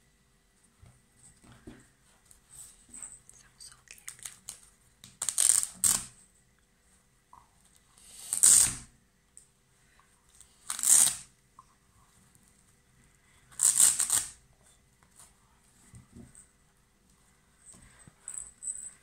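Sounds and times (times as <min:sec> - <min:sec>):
velcro ripping apart: 0:05.2 - 0:06.2, 0:08.2 - 0:08.9, 0:10.5 - 0:11.3, 0:13.5 - 0:14.4.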